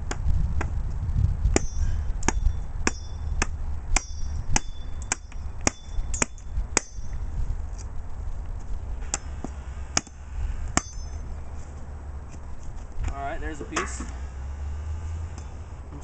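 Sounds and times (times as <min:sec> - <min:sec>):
metallic ring of blade: 0:01.6 - 0:03.3, 0:04.0 - 0:07.1, 0:10.8 - 0:11.4, 0:13.6 - 0:14.2.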